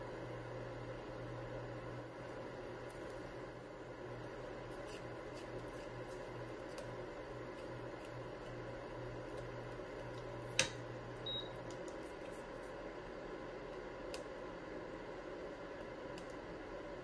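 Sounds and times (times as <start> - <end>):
cooktop hum and whine: 0.0 - 17.0
cooktop switch click: 10.6 - 10.8.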